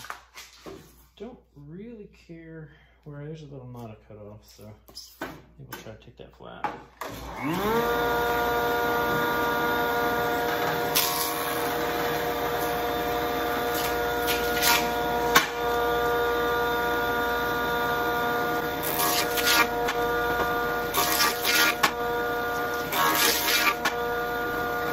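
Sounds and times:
jointer knives cutting wood: 7.0s - 24.9s
jointer motor whine: 7.0s - 24.9s.

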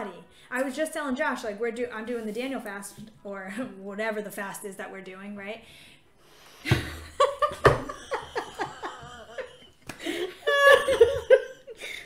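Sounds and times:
women laughing: 6.8s - 12.0s.

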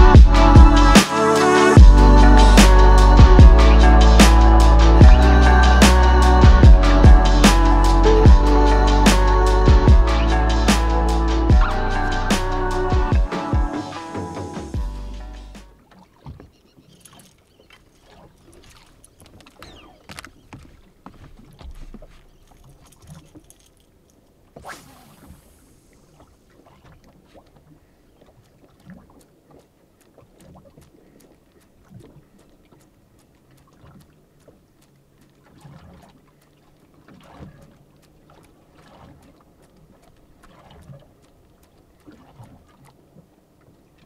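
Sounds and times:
sharp swish: 2.6s - 2.8s, 24.6s - 25.7s
water lapping against boat hull: 15.6s - 44.0s.

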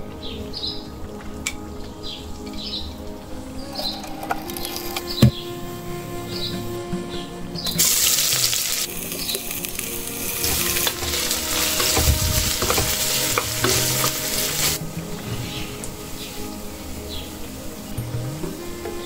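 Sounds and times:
food sizzling in hot oil: 7.8s - 14.8s.

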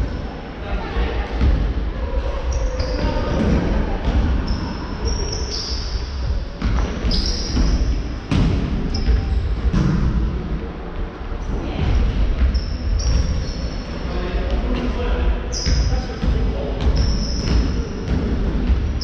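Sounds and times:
sneakers squeaking: 1.3s - 10.1s, 11.7s - 14.1s, 15.5s - 19.0s.

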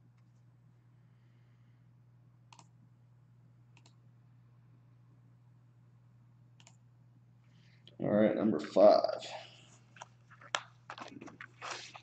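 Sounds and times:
low steady hum: 0.0s - 12.0s
computer mouse clicks: 2.5s - 2.7s, 3.8s - 4.0s, 6.6s - 6.8s.

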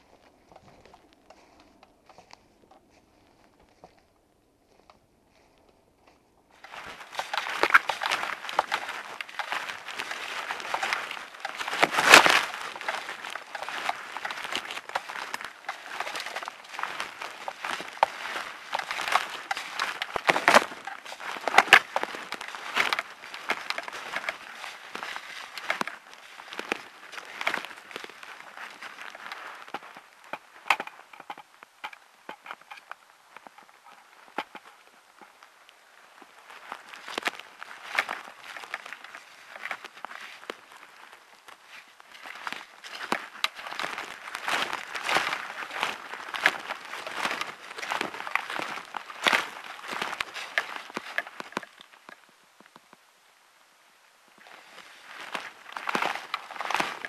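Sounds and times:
footsteps crunching dry leaves: 0.0s - 52.7s, 54.3s - 57.0s.

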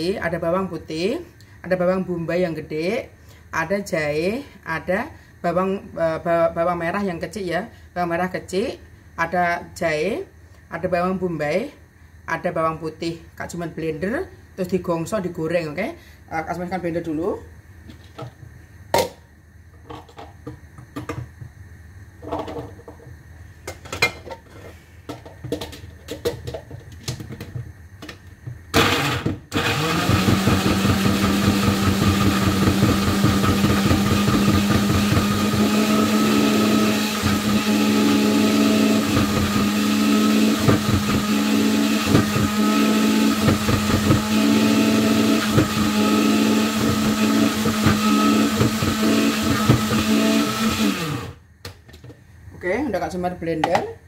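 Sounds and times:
electric blender grinding: 28.7s - 51.4s.

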